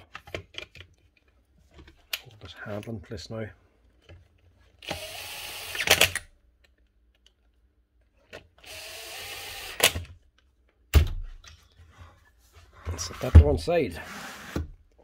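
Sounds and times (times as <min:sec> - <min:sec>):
cordless drill running: 0:04.8 - 0:06.2, 0:08.6 - 0:10.0.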